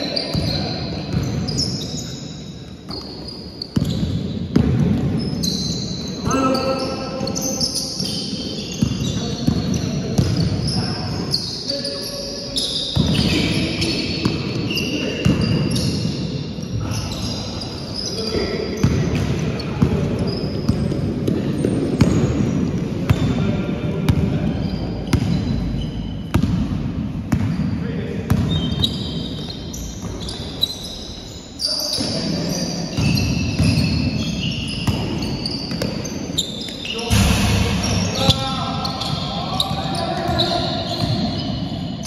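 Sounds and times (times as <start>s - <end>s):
sneakers squeaking: 0.0s - 42.0s
basketball bouncing on wooden court: 0.3s - 1.9s, 3.8s - 6.0s, 8.6s - 10.8s, 12.7s - 16.2s, 18.8s - 23.4s, 24.1s - 25.6s, 26.3s - 30.5s, 32.9s - 36.2s, 40.2s - 41.4s.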